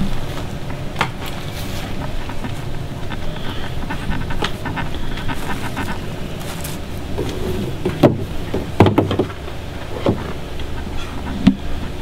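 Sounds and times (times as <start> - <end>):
steady low hum: 0.0 - 12.0
plastic hose fittings knocking: 7.2 - 9.4.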